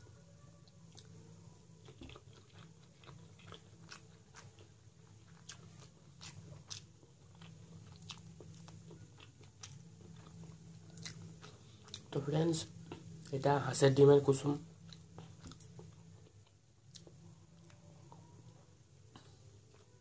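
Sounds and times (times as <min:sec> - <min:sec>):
low steady hum: 0:00.0 - 0:20.0
man chewing: 0:01.8 - 0:12.2, 0:14.8 - 0:18.3, 0:19.1 - 0:20.0.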